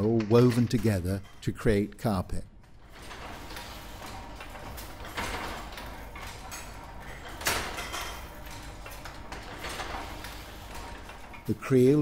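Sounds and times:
loom mechanism clattering: 0:00.0 - 0:12.0
sharp loom clack: 0:02.8 - 0:11.6.

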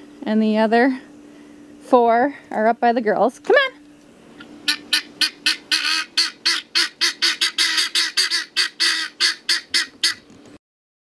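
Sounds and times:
guinea fowl calling: 0:04.4 - 0:10.2.

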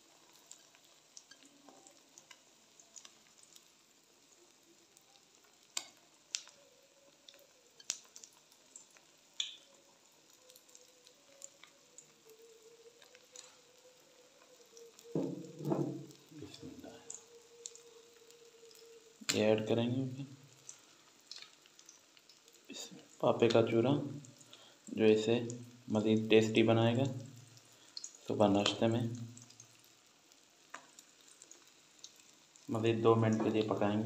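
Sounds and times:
omelette sizzling in oil: 0:00.0 - 0:34.0
loud thump: 0:15.2 - 0:16.0.

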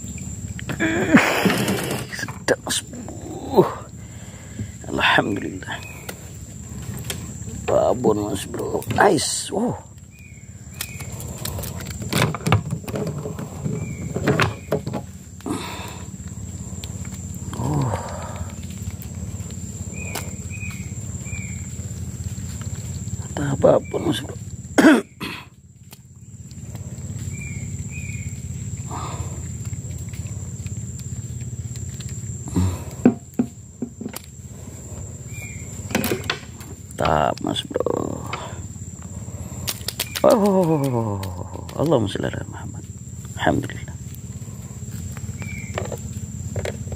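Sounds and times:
high insect whine: 0:00.0 - 0:46.9
knocks and rattles in wooden boat: 0:12.0 - 0:15.2
sharp clicks and knocks: 0:35.9 - 0:37.2.

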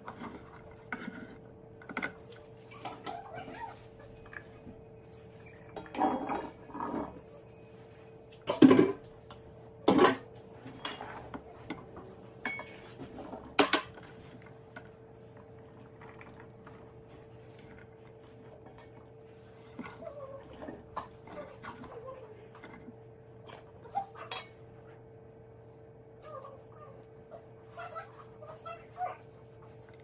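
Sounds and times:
metal and dishes clanking: 0:00.0 - 0:04.5, 0:05.1 - 0:09.2, 0:09.8 - 0:14.9.

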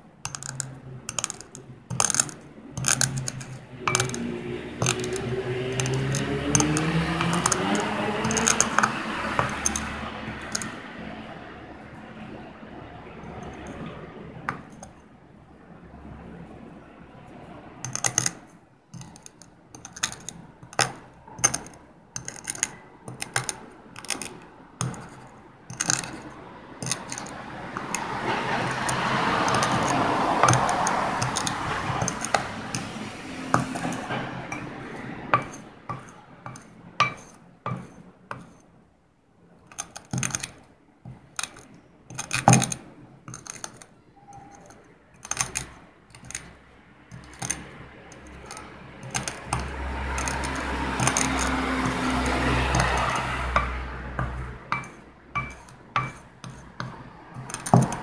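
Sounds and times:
spoon grinding eggshell in bowl: 0:00.3 - 0:11.0, 0:13.2 - 0:15.0, 0:17.8 - 0:38.6, 0:39.7 - 0:58.0.

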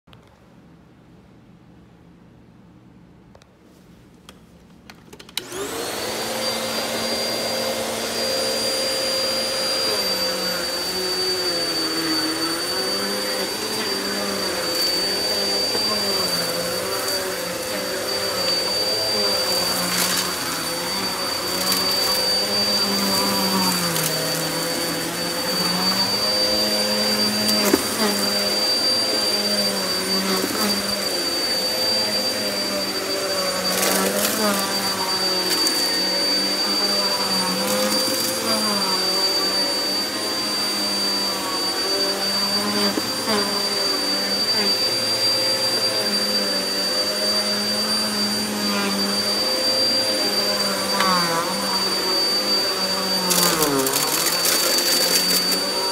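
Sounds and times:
vacuum cleaner motor whine: 0:05.2 - 0:55.9.

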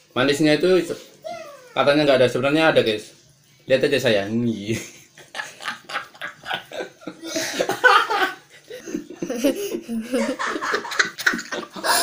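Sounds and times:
man laughing heartily: 0:05.3 - 0:12.0.

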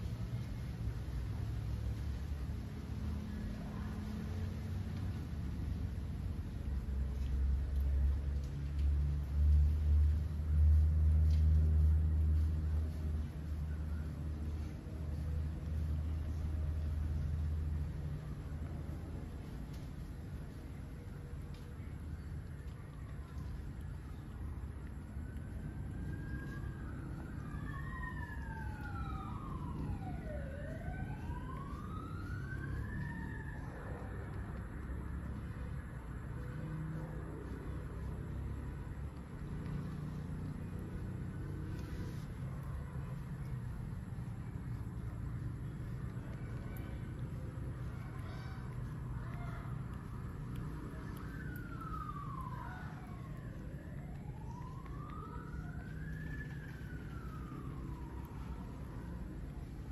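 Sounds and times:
steady low rumble: 0:00.0 - 0:59.9
second siren tone: 0:24.9 - 0:35.4, 0:46.2 - 0:59.9
siren wailing: 0:24.9 - 0:35.6, 0:36.6 - 0:59.9.

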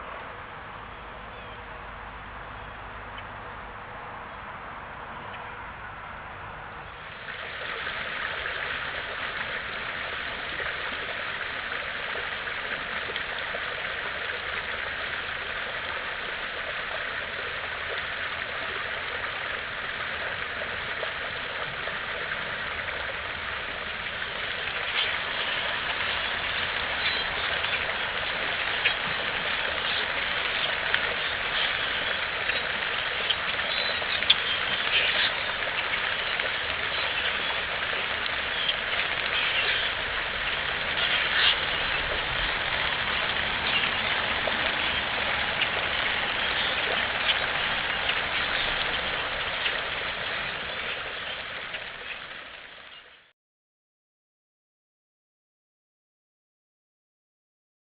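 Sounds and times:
creek water over rocks: 0:00.0 - 0:53.3
birds clicking and chirping: 0:20.2 - 0:53.1.

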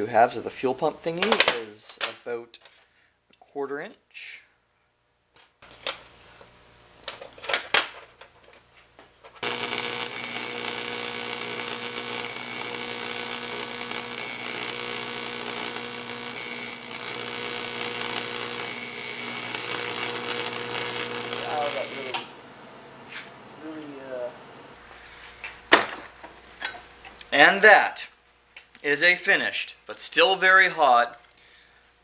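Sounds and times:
welding arc hissing and buzzing: 0:09.4 - 0:22.4.

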